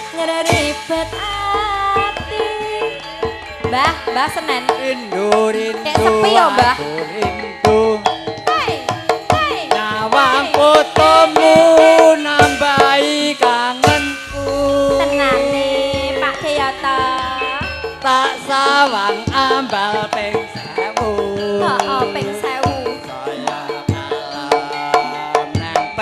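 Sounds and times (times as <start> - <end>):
woman singing into microphone: 0.0 - 7.4, 8.4 - 26.0
gamelan music: 0.0 - 26.0
man singing into microphone: 4.7 - 8.5, 9.7 - 26.0.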